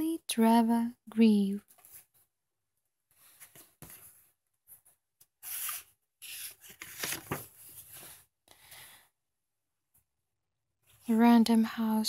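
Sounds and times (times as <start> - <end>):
book pages rustling: 1.7 - 2.3, 3.2 - 8.2.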